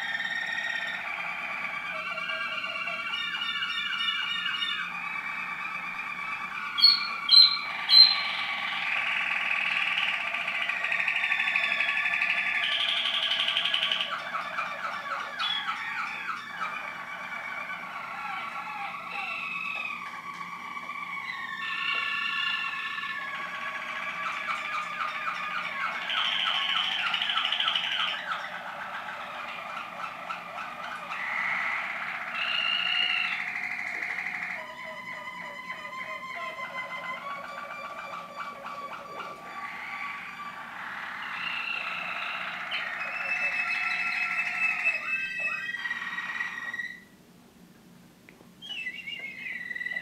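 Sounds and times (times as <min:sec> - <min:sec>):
canary trilling and warbling: 0:00.0 - 0:47.1.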